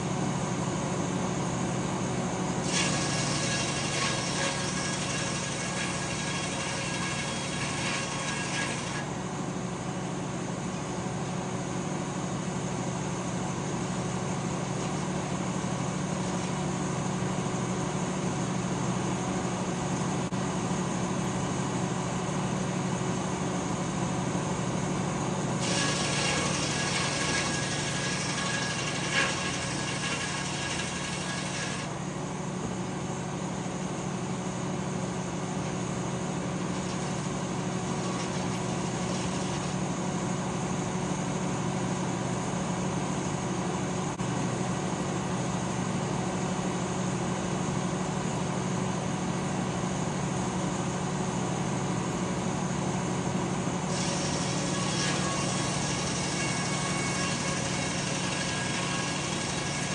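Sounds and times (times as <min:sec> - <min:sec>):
sawmill engine running: 0:00.0 - 0:59.9
saw cutting through wood: 0:02.6 - 0:09.3, 0:25.6 - 0:32.0, 0:36.4 - 0:40.0, 0:53.9 - 0:59.9.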